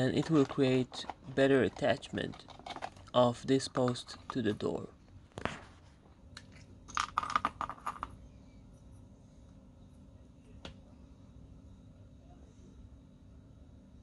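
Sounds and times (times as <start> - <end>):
small tools clicking and rattling: 0.0 - 4.6
faint steady hum: 0.0 - 14.0.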